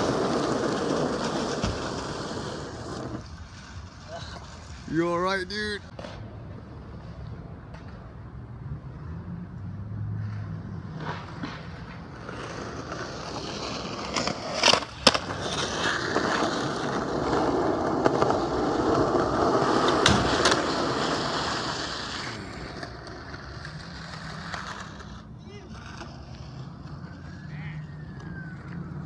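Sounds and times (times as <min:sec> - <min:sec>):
skateboard wheels rolling on pavement: 0:00.0 - 0:29.0
skateboard clacking on ground: 0:10.2 - 0:27.3.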